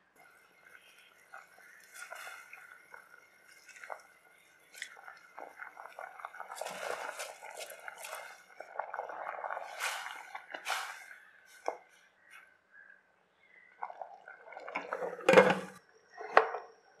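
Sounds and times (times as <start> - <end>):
liquid simmering and bubbling: 0.0 - 17.0
rice pouring into liquid: 0.2 - 11.8
spatula stirring liquid: 0.7 - 11.9.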